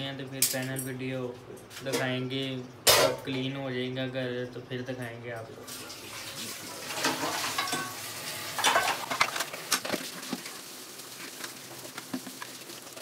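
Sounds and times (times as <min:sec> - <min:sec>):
dishes clinking and clattering: 0:02.9 - 0:03.3, 0:06.8 - 0:08.0, 0:08.6 - 0:09.9
running tap water: 0:05.7 - 0:13.0.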